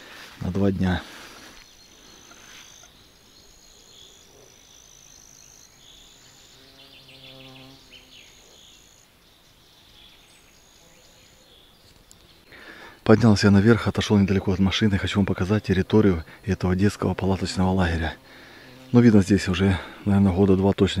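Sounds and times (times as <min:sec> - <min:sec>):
insects trilling: 0:00.9 - 0:12.8
bird chirps: 0:01.5 - 0:12.6.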